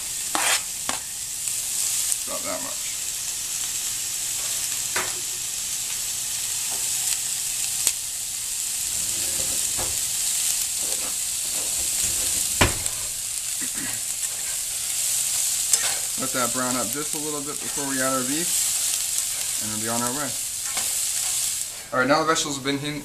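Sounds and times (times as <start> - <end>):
vegetables sizzling in a frying pan: 0.0 - 23.0
spatula scraping vegetables: 0.3 - 1.0, 8.8 - 21.9
sharp knocks: 12.5 - 13.0.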